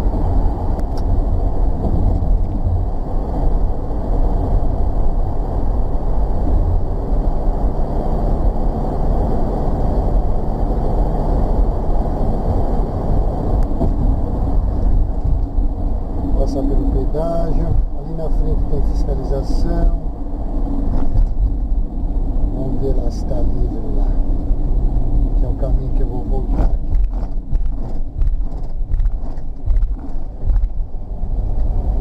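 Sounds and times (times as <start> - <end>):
road and engine rumble inside van: 0.0 - 32.0.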